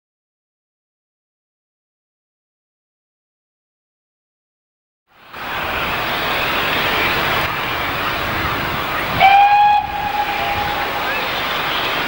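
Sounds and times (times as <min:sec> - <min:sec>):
steam locomotive exhaust rush: 0:05.4 - 0:12.0
steam whistle blast: 0:09.2 - 0:11.2.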